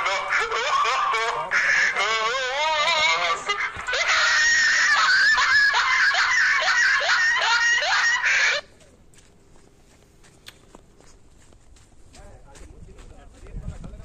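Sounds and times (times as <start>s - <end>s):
comic rising squeals: 0.4s - 8.6s.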